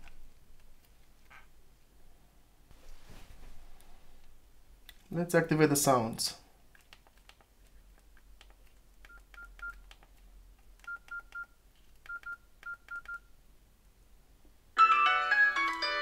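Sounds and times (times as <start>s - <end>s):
phone keypad beeps: 9.1s - 9.8s, 10.8s - 11.5s, 12.1s - 13.3s
piano-like ringtone melody: 14.8s - 16.0s.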